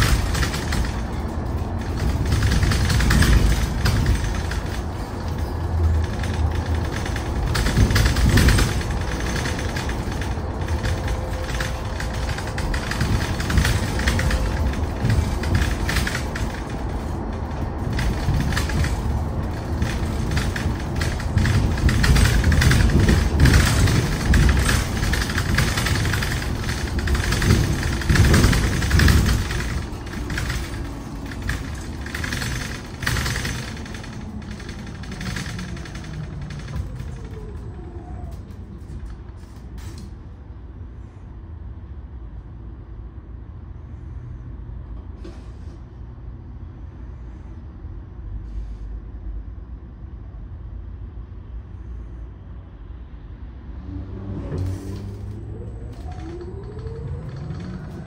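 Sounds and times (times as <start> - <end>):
bus body rattles and knocks: 0.0 - 41.1, 54.4 - 58.0
tyre and road rumble: 0.0 - 41.1, 53.4 - 58.0.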